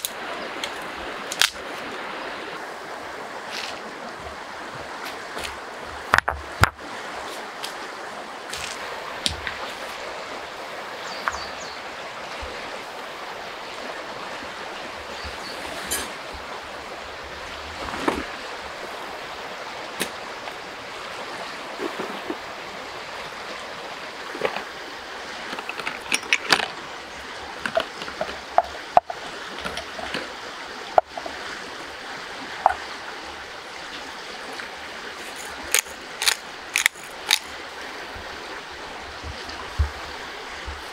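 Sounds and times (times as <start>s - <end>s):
flowing river rushing: 0.0s - 40.9s
clicks and knocks of handling: 25.5s - 26.8s, 27.6s - 30.3s, 35.3s - 37.5s.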